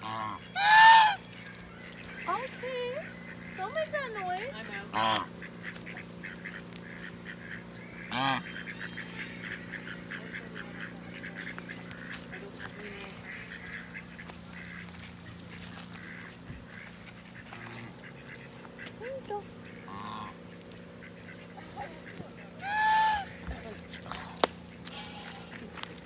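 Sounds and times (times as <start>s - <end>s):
geese honking: 0.0s - 26.0s.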